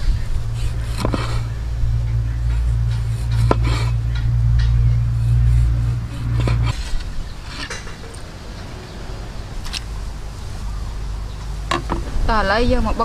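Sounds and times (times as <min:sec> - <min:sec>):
low rumble: 0:00.0 - 0:13.0
knife cutting on wooden board: 0:00.6 - 0:01.5.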